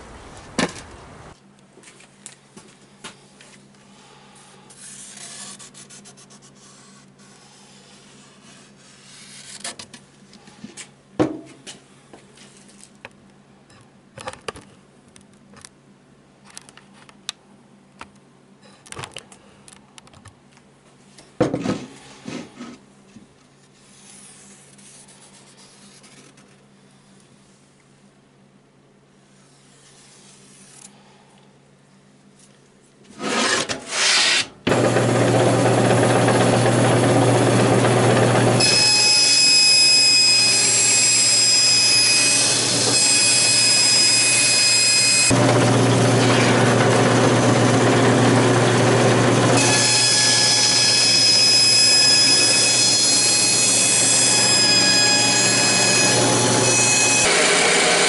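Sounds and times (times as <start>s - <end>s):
saw blade cutting plastic whine: 33.1s - 58.0s
bandsaw motor hum: 33.2s - 58.0s.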